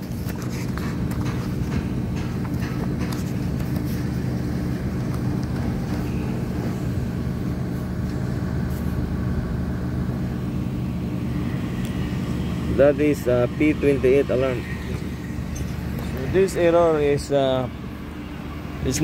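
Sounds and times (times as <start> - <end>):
paper pages rustling: 0.0 - 6.2
machinery humming: 0.0 - 19.0.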